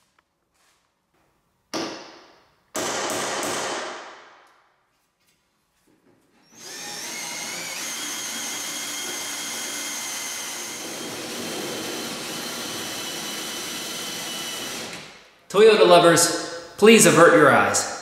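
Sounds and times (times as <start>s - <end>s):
cordless drill boring into steel: 6.4s - 15.0s.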